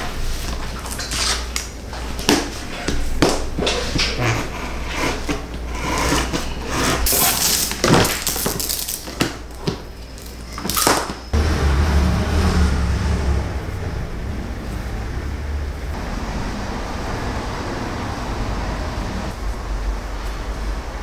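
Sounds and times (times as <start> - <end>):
steady low hum: 11.2 - 21.0.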